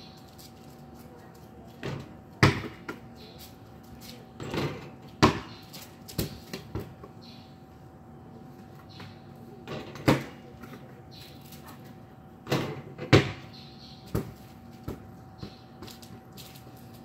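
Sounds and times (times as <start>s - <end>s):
basketball bouncing and hitting hoop: 1.8s - 3.1s, 4.4s - 7.1s, 12.4s - 16.1s.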